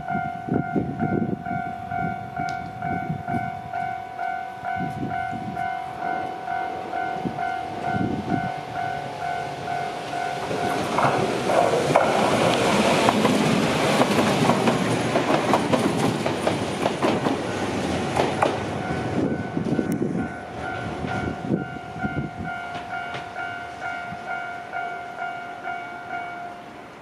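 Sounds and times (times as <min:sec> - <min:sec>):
train wheels clattering: 0:09.6 - 0:24.0.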